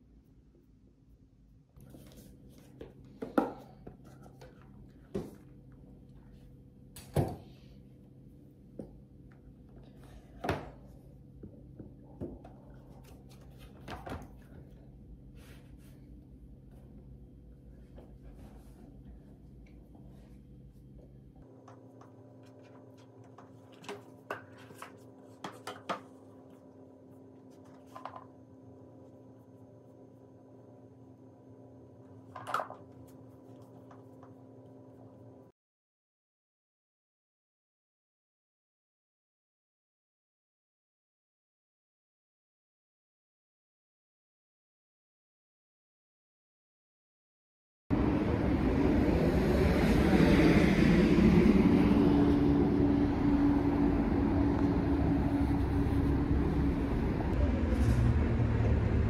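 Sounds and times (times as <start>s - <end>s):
low steady room hum: 0.0s - 35.5s, 47.9s - 59.0s.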